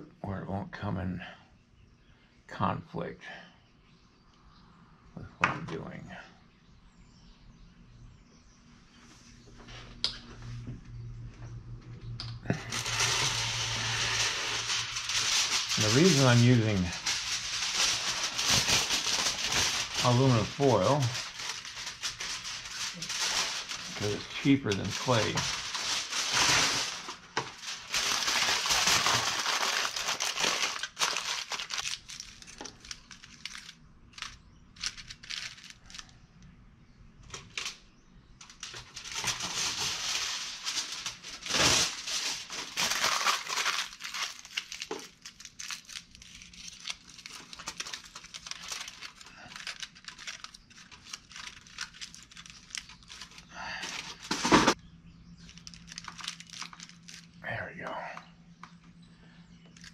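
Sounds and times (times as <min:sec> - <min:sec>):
aluminum foil crinkling: 0:12.5 - 0:36.3, 0:38.4 - 0:54.8, 0:55.4 - 0:57.6, 0:59.6 - 0:59.9.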